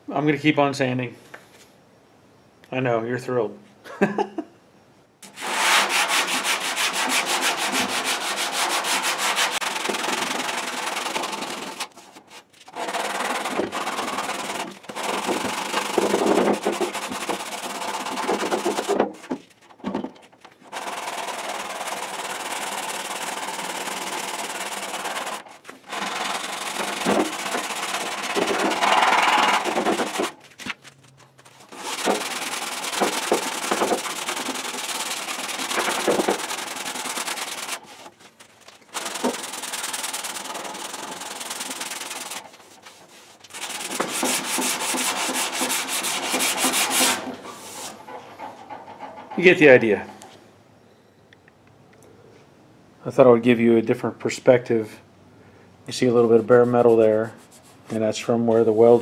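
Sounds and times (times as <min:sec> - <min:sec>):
sandpaper rubbing on filler: 0:05.3 - 0:19.5, 0:20.7 - 0:30.4, 0:31.4 - 0:48.1, 0:55.9 - 0:59.0.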